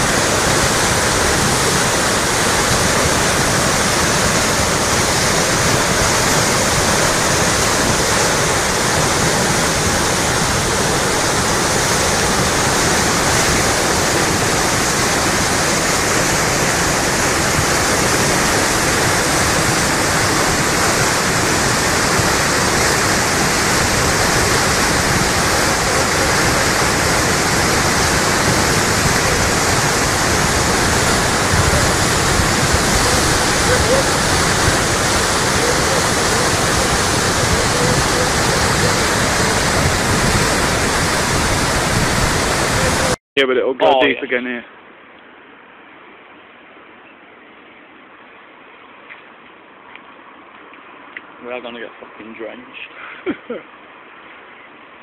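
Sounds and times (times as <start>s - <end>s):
flood water rushing: 0.0s - 43.2s.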